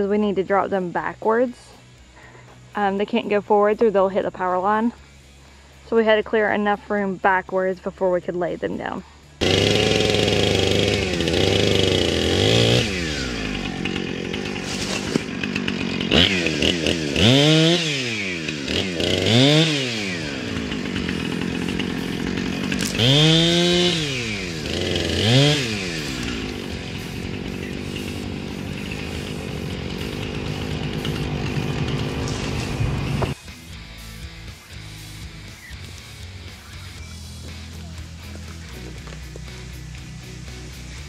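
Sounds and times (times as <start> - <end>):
chainsaw revving and idling: 9.3 - 41.0.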